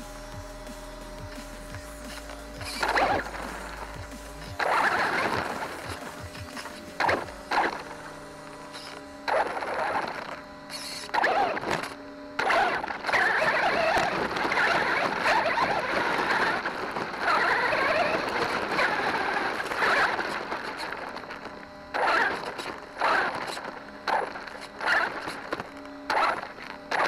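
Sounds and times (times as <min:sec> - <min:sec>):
toy truck drivetrain whirring: 0:08.6 - 0:25.5.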